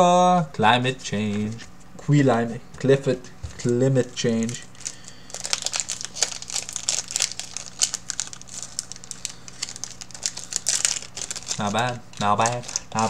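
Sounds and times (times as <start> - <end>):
foil wrapper crinkling: 4.1 - 13.0.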